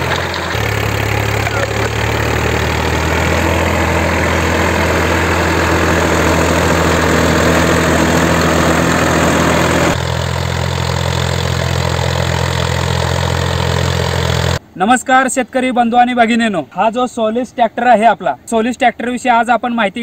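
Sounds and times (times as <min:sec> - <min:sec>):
tractor diesel engine running: 0:00.0 - 0:14.7.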